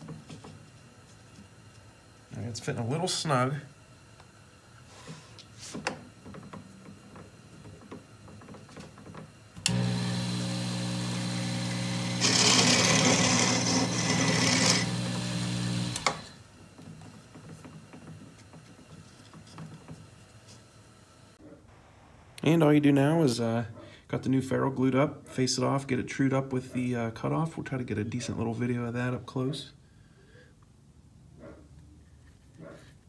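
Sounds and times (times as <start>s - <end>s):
lathe motor humming: 6.2s - 21.3s
cutting tool hissing on wood: 9.7s - 16.4s.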